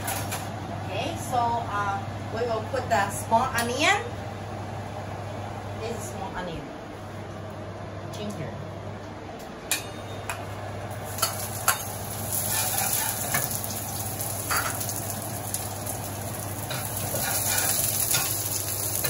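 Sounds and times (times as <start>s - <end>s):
shallots sizzling in hot oil: 11.0s - 19.0s.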